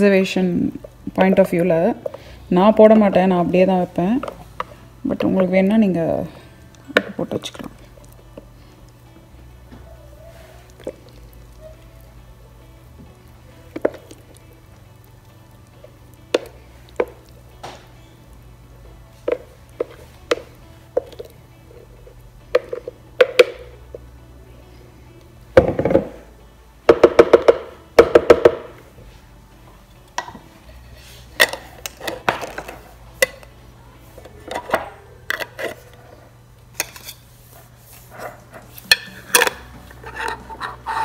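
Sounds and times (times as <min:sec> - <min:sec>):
metal lids clicking on jars: 0:31.4 - 0:33.5, 0:34.4 - 0:35.9, 0:38.9 - 0:40.8.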